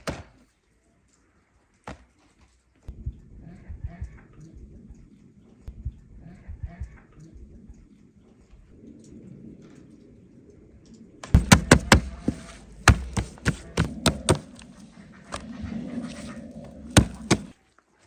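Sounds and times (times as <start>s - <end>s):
sharp knocks or chops: 11.4s - 14.4s.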